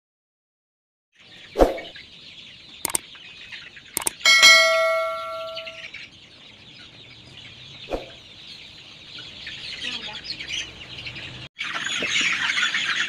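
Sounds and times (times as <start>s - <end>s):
chickens clucking: 1.2s - 13.0s
mouse clicks: 4.0s - 4.2s
bell ding: 4.2s - 5.9s.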